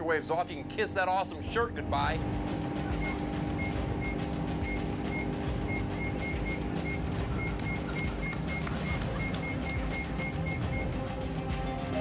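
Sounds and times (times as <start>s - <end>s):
microwave ovens humming: 0.0s - 12.0s
keypad beeps: 2.9s - 11.1s.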